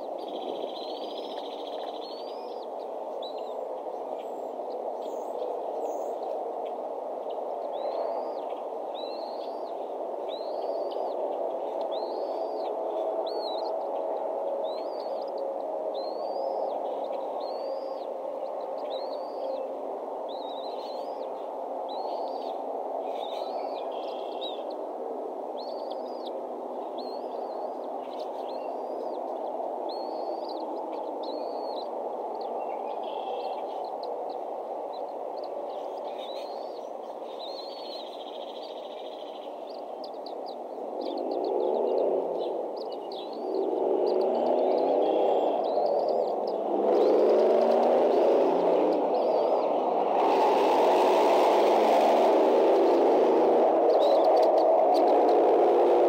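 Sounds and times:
bird chirping: 0:07.6 - 0:14.0, 0:14.6 - 0:24.8, 0:25.6 - 0:47.9.

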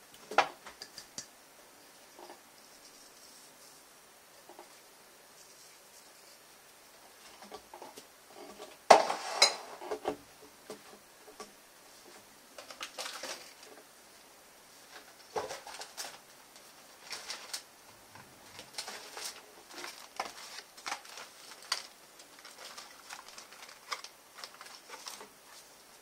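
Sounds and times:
dishes and utensils clattering: 0:08.9 - 0:10.0.

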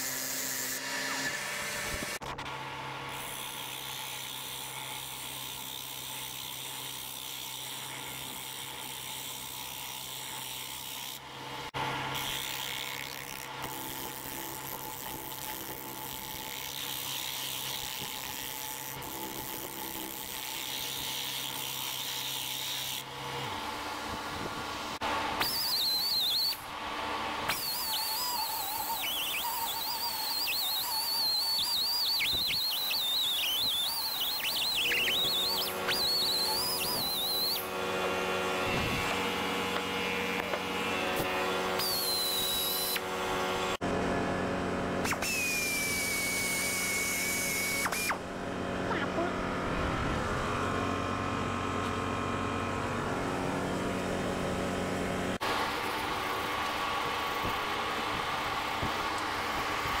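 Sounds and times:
wood lathe humming: 0:00.0 - 1:00.0
gouge scraping spinning wood: 0:03.1 - 0:11.4, 0:12.2 - 0:26.5, 0:27.4 - 0:43.8
high wavering whistle-like tone: 0:25.4 - 0:26.6, 0:27.5 - 0:37.7, 0:41.8 - 0:43.0, 0:45.0 - 0:48.2.

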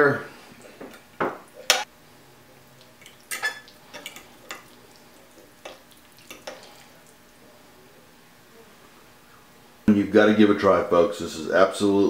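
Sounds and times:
fork clinking on plate: 0:03.3 - 0:04.6.

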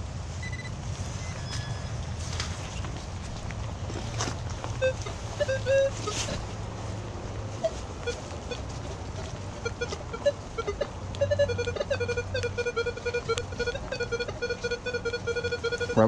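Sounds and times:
low steady hum: 0:00.0 - 0:16.0
metal detector beeps: 0:00.4 - 0:02.0, 0:04.8 - 0:06.3, 0:09.6 - 0:16.0.

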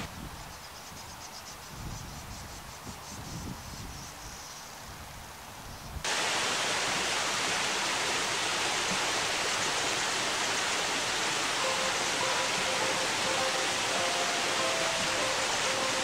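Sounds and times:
water rushing through a channel: 0:06.0 - 0:16.0.

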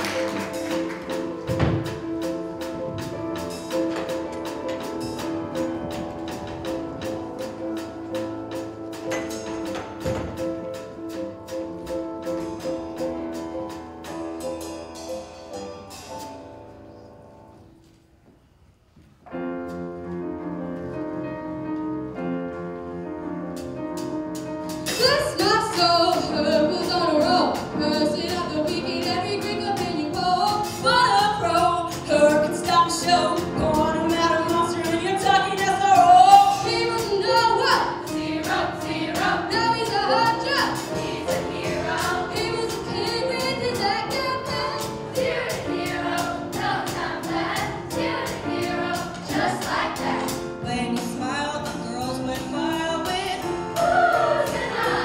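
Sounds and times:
drums and cymbals: 0:00.0 - 0:16.8, 0:23.5 - 0:55.0
piano chords: 0:00.0 - 0:55.0
choir singing pop song: 0:36.6 - 0:51.0, 0:53.2 - 0:55.0.

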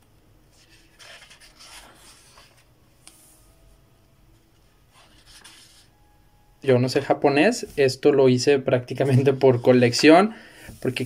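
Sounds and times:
paper pages rustling: 0:00.5 - 0:03.3.

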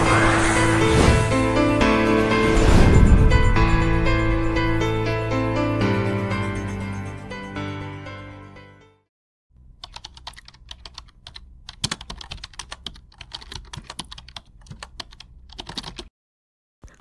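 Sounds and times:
background music: 0:00.0 - 0:09.0
computer keyboard typing: 0:09.8 - 0:16.1.

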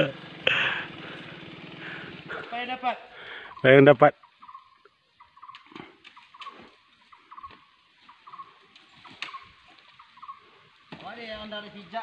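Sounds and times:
small animal chirping: 0:03.5 - 0:10.4.

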